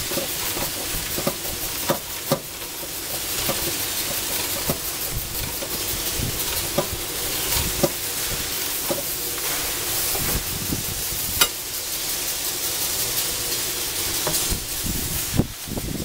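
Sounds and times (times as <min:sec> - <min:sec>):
hand tools knocking on metal: 0:00.0 - 0:08.0, 0:08.8 - 0:09.2
steady hiss: 0:00.0 - 0:16.0.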